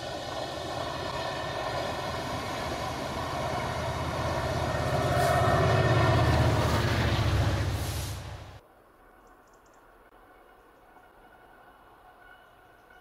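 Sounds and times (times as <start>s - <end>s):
diesel locomotive engine: 0.0s - 8.6s
train coaches rumbling over rails: 0.0s - 8.6s.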